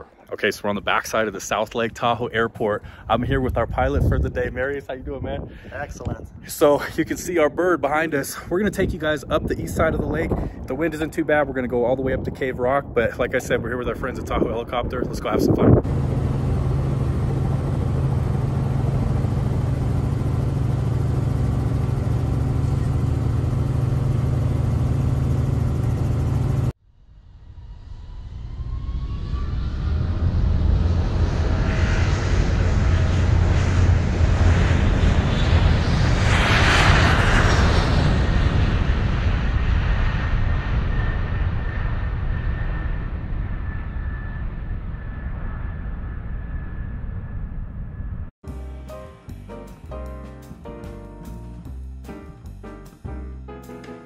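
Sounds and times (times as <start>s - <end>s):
helicopter engine and rotor drone: 15.5s - 26.8s
quiet rising tone: 15.8s - 36.4s.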